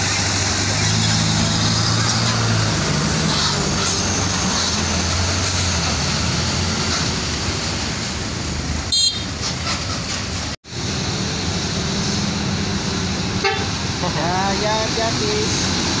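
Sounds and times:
diesel engine humming: 0:10.4 - 0:16.0
short high horn toot: 0:13.4 - 0:13.8.

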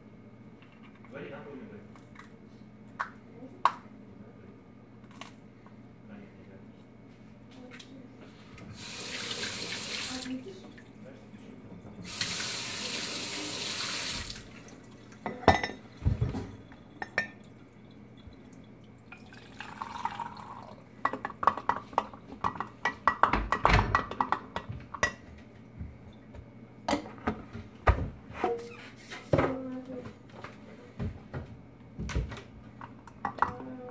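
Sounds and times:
hot water poured into mug: 0:17.5 - 0:20.8.

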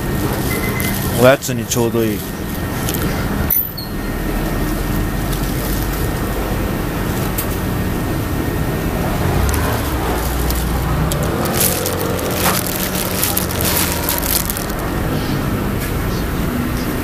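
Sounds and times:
passing road traffic rumble: 0:00.0 - 0:17.0
plastic bag crinkling: 0:00.3 - 0:03.1, 0:04.5 - 0:06.4, 0:09.1 - 0:15.0.

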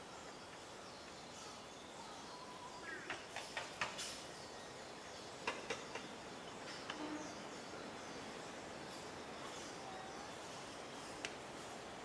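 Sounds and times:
faint outdoor background: 0:00.0 - 0:12.0.

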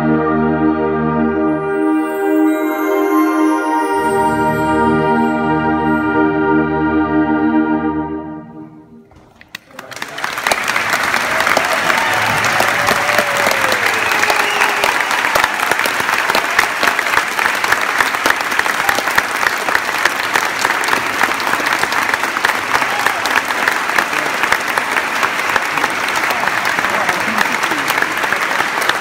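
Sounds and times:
audience applauding: 0:09.3 - 0:29.0.

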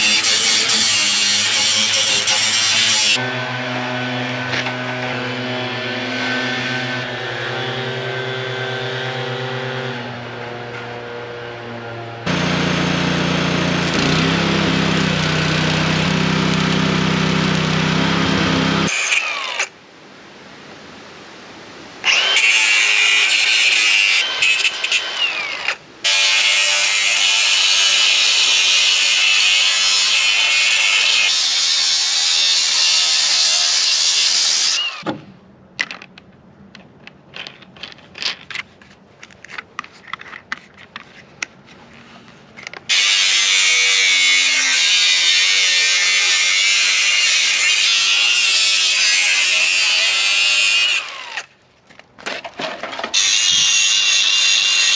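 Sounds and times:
angle grinder cutting sheet steel: 0:00.0 - 0:11.3, 0:12.2 - 0:19.7, 0:22.0 - 0:35.0, 0:42.9 - 0:51.5, 0:53.1 - 0:54.9.

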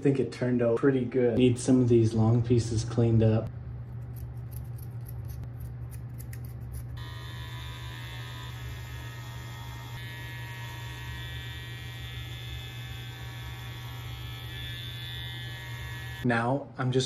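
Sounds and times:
electric clipper buzzing: 0:06.0 - 0:16.3.

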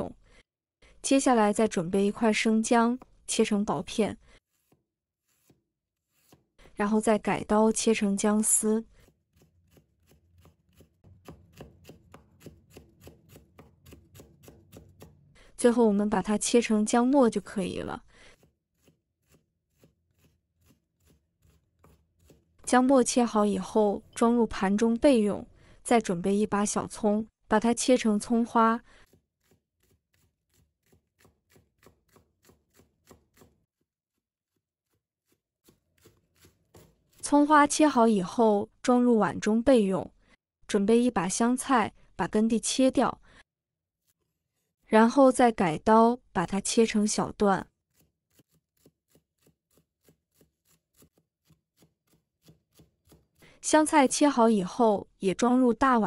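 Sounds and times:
cleaver chopping on wooden board: 0:09.0 - 0:15.3, 0:18.4 - 0:22.6, 0:29.1 - 0:33.6, 0:47.9 - 0:53.4.

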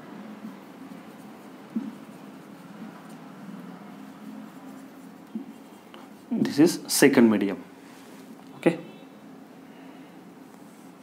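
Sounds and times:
marker pen on whiteboard: 0:00.0 - 0:06.9.

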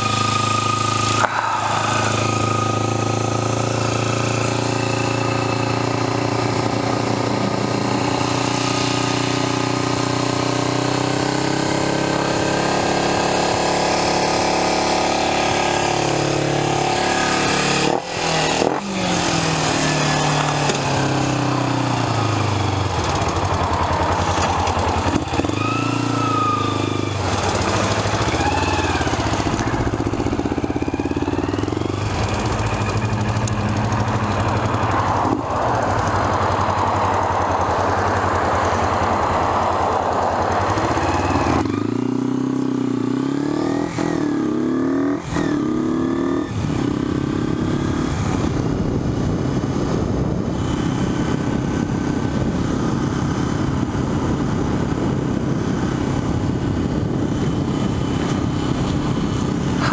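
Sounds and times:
motorcycle engine revving: 0:00.0 - 0:59.9
wind noise: 0:15.4 - 0:59.9.

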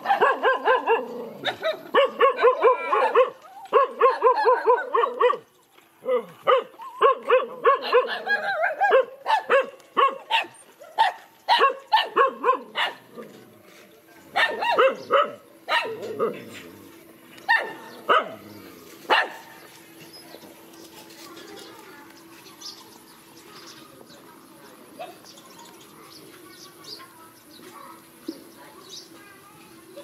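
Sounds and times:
dogs barking: 0:00.0 - 0:13.4, 0:14.3 - 0:16.7, 0:17.4 - 0:19.7.

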